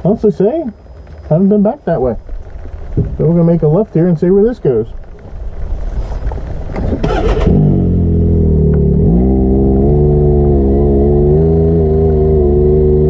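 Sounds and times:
vehicle engine accelerating: 6.6s - 13.0s.

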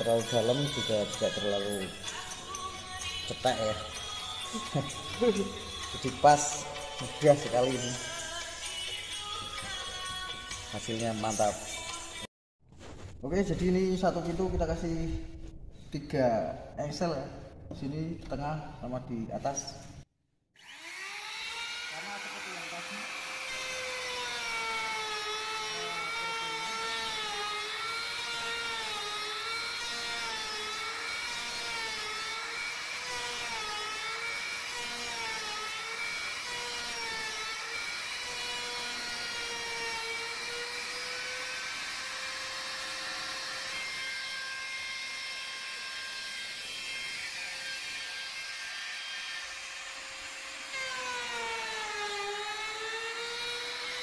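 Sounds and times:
electric router whining: 20.6s - 54.0s.

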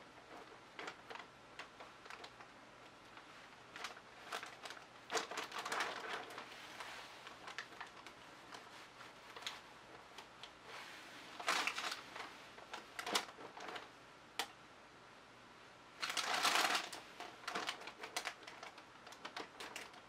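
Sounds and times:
rustling scrapes: 3.0s - 13.9s.

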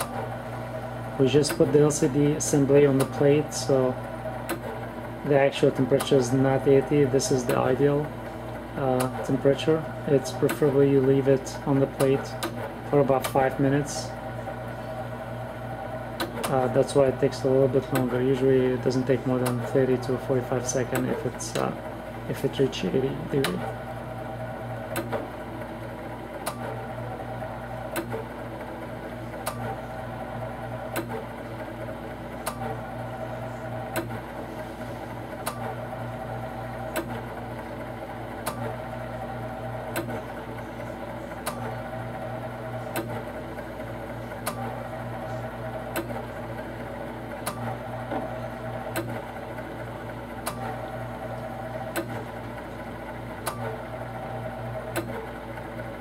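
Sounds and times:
machine humming: 0.0s - 56.0s
sharp click: 26.4s - 26.7s, 38.5s - 38.7s, 50.4s - 50.7s, 53.4s - 53.8s, 54.9s - 55.2s.

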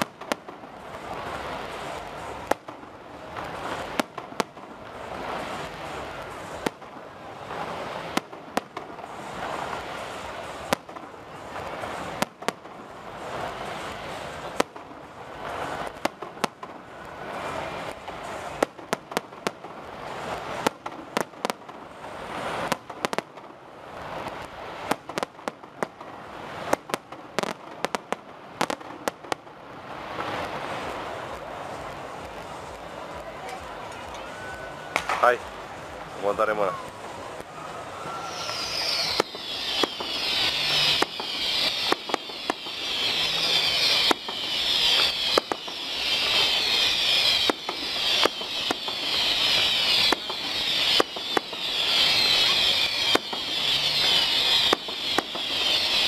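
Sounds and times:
firework shells bursting: 0.0s - 23.6s, 34.9s - 56.0s.

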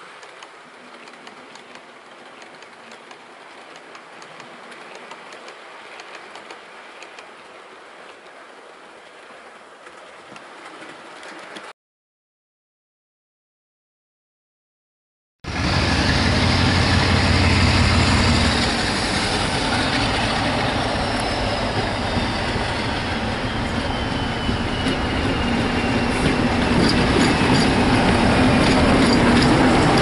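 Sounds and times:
diesel locomotive engine: 15.4s - 30.0s
wheels rumbling on track: 15.4s - 30.0s.

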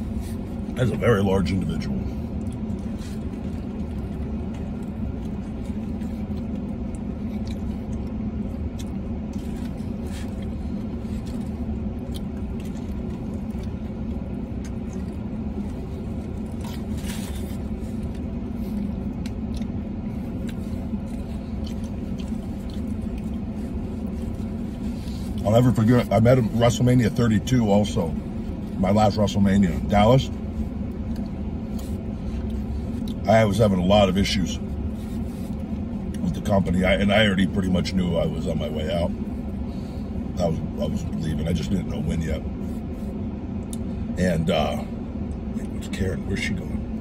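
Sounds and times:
man chewing food: 0.0s - 29.1s, 29.8s - 33.6s, 34.2s - 36.6s, 42.4s - 44.2s
low hum in truck cab: 0.0s - 47.0s.

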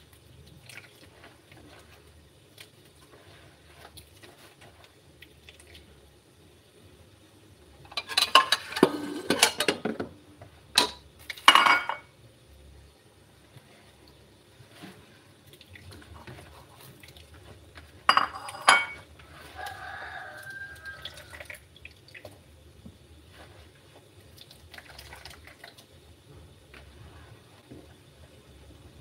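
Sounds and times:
hands squeezing wet coconut: 0.0s - 6.1s, 13.7s - 18.1s, 19.0s - 22.5s, 23.2s - 26.0s
liquid dripping and splashing: 0.1s - 3.0s, 3.8s - 6.0s, 15.4s - 17.9s, 19.6s - 22.4s, 24.2s - 26.0s.

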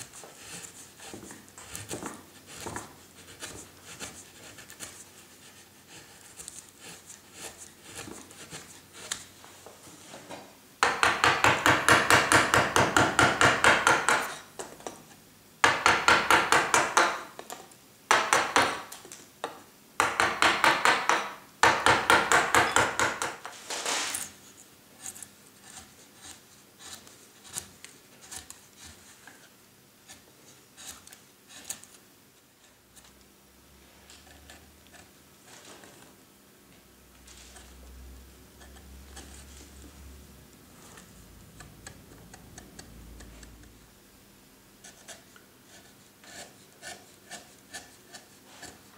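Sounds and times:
chisel paring and scraping wood: 0.0s - 9.3s, 10.8s - 17.4s, 20.0s - 24.4s, 25.0s - 32.0s, 38.5s - 39.8s, 44.8s - 48.9s.

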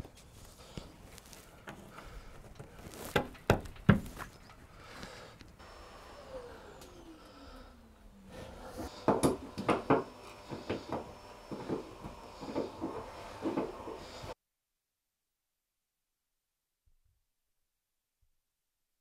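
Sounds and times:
tool clicking and knocking on plastic: 9.0s - 11.8s.

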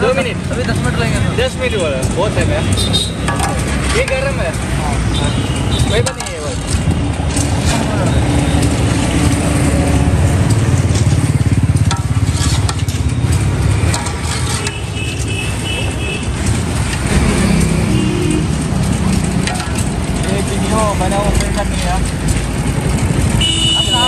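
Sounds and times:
clicks and clatter: 0.0s - 24.0s
street noise: 0.0s - 24.0s
vehicle engine running: 6.6s - 23.9s.

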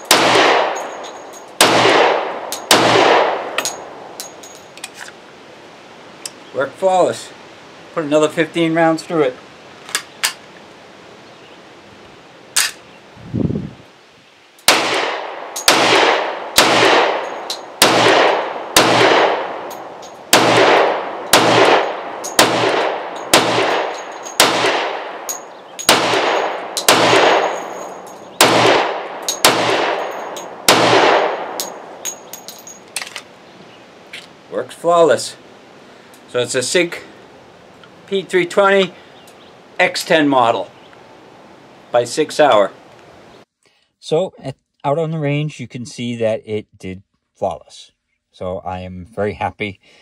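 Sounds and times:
pistol shots: 0.0s - 3.9s, 14.6s - 32.2s.

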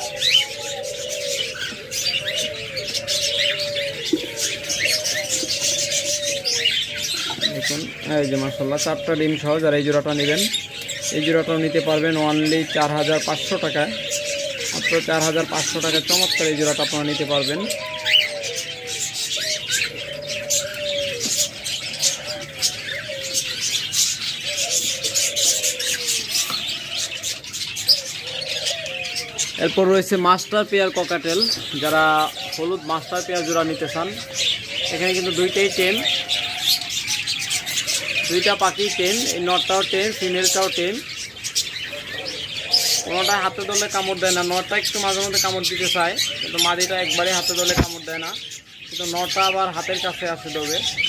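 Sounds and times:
doves cooing: 0.0s - 51.0s
small birds chirping: 0.0s - 51.0s.

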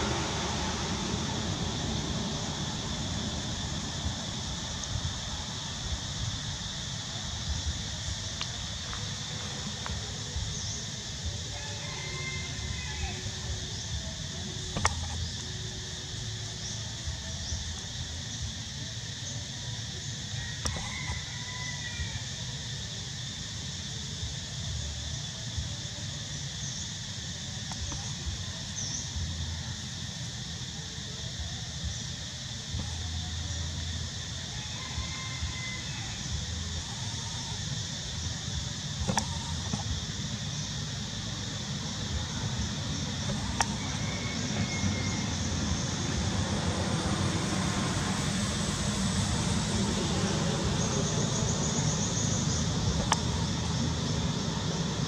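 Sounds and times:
insect chorus: 0.0s - 55.0s
faint clicks: 53.0s - 53.3s.

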